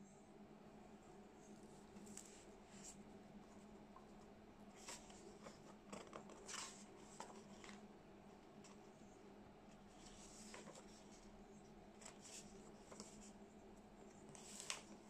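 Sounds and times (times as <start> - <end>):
low steady hum: 0.0 - 15.0
book pages turning: 1.9 - 3.0, 4.8 - 7.9, 9.9 - 11.3, 11.9 - 13.4, 14.0 - 15.0.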